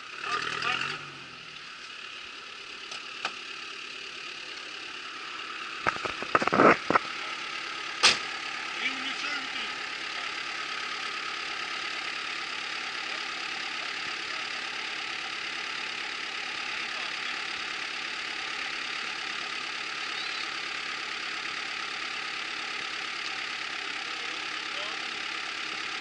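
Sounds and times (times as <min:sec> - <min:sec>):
vehicle engine idling: 0:00.0 - 0:26.0.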